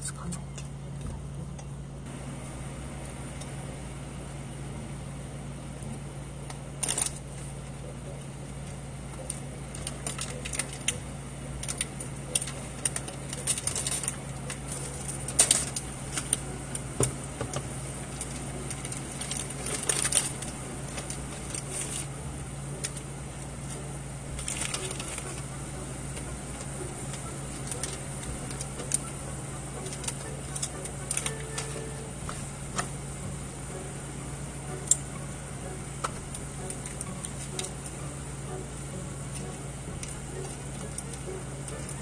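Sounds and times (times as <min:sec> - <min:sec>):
low hum: 0:00.0 - 0:42.0
plastic packets crinkling: 0:09.3 - 0:11.0, 0:11.6 - 0:16.9, 0:18.0 - 0:22.1, 0:22.8 - 0:32.9.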